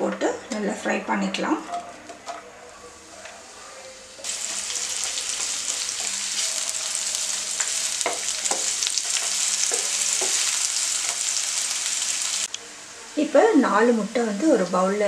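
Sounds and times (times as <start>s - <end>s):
onions sizzling in oil: 3.4s - 15.0s.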